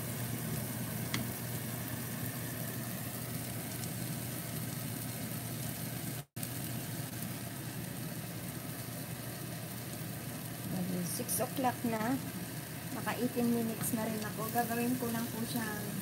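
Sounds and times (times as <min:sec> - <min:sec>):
food sizzling in a frying pan: 0:00.0 - 0:16.0.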